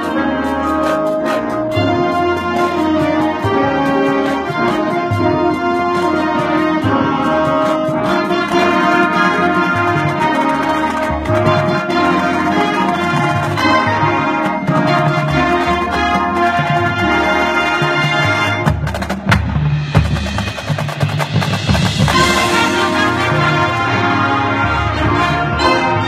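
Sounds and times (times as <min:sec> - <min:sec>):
marching band playing: 0:00.0 - 0:26.0
sharp percussion hits: 0:18.0 - 0:26.0.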